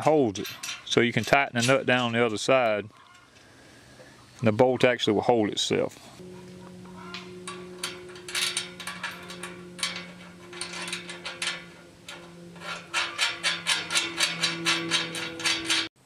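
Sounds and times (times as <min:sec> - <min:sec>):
ratchet wrench clicking: 0:07.0 - 0:15.9.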